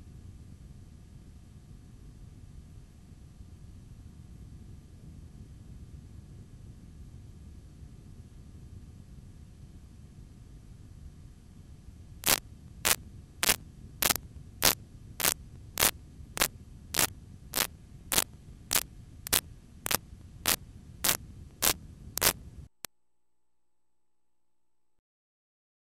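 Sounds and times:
low hum and hiss: 0.0s - 22.9s
loud static bursts: 12.2s - 22.4s.

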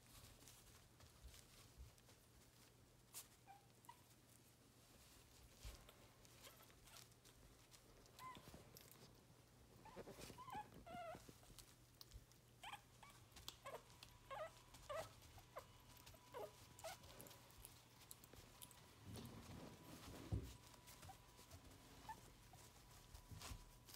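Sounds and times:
soft clicks of eating: 5.5s - 9.3s, 11.2s - 14.9s, 15.5s - 19.4s
puppies squeaking and whimpering: 9.8s - 11.4s, 12.6s - 17.4s.

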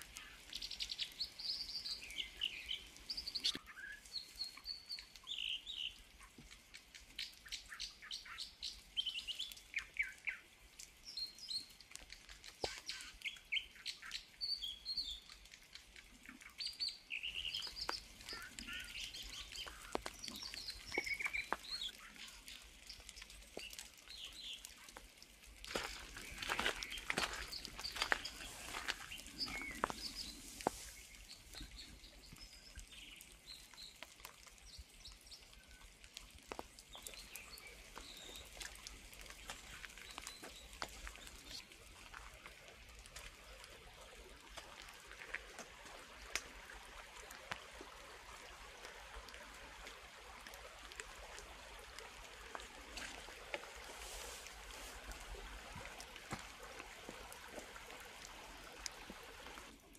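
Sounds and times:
trickling water: 0.0s - 59.9s
water drips: 0.0s - 59.9s
high bird chirps: 16.5s - 23.0s.

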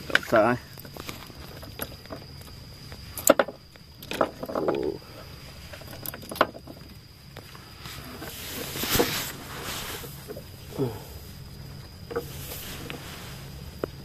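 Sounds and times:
handling clicks and knocks: 5.7s - 7.5s.

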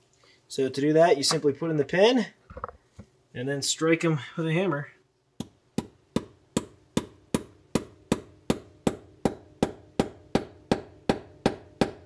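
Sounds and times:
hammer striking steel pin: 5.4s - 12.0s.

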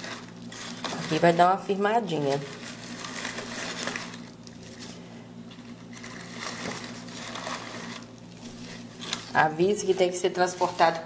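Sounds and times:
steady low hum: 0.0s - 11.0s
straw rustling: 2.2s - 11.0s.

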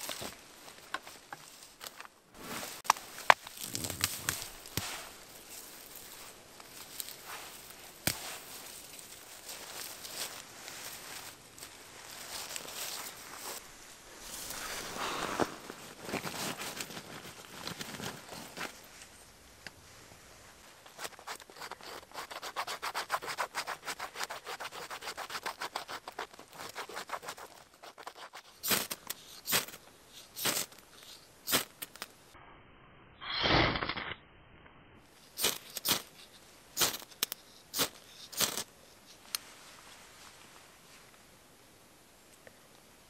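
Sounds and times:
knife scraping bark: 20.8s - 31.7s.

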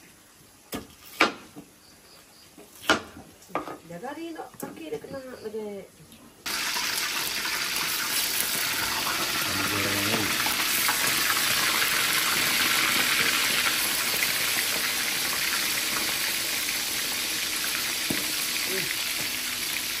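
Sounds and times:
water running from a tap: 6.5s - 20.0s.

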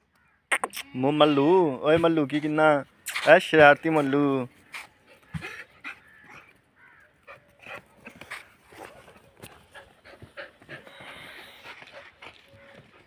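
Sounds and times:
dogs panting and sniffing: 3.2s - 13.0s.

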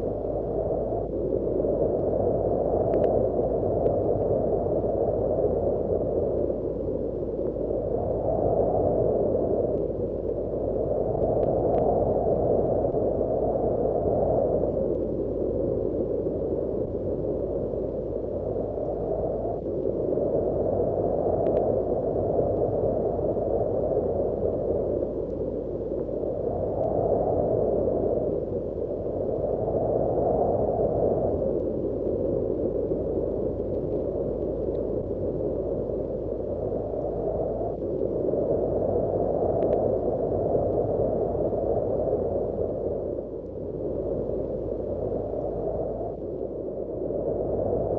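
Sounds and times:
wind blowing in gusts: 0.0s - 47.9s.

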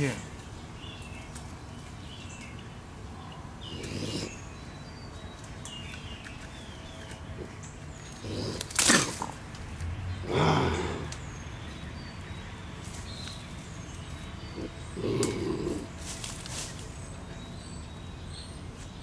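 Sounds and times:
small birds chirping: 0.0s - 19.0s
raccoon lunging in wire trap: 8.2s - 9.4s.

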